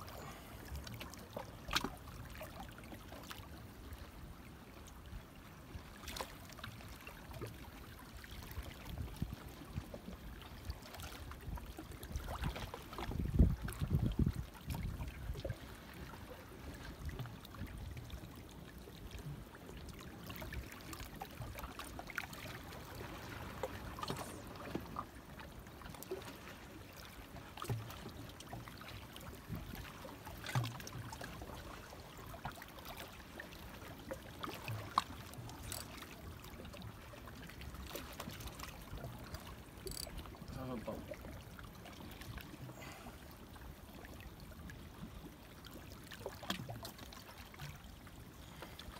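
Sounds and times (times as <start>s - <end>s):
sea water lapping on rocks: 20.0s - 36.8s
faint clicks and knocks: 35.0s - 36.0s, 39.2s - 40.2s.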